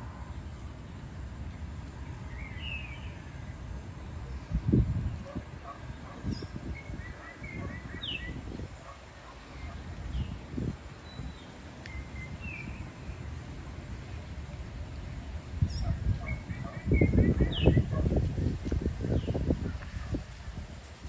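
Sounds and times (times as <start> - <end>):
wind buffeting microphone: 3.6 - 13.0, 14.2 - 21.0
bird chirps and calls: 5.9 - 8.4, 15.6 - 18.0.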